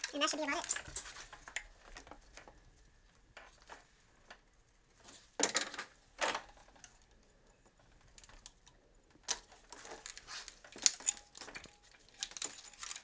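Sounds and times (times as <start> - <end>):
metal tools clinking: 0.0 - 2.5, 9.3 - 13.0.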